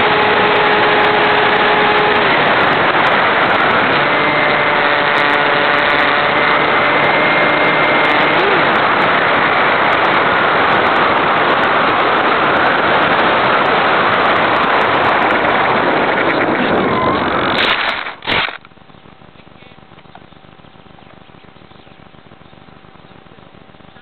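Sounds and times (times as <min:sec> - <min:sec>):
model plane motor and propeller: 0:00.0 - 0:18.8
plane hitting the ground: 0:00.0 - 0:24.0.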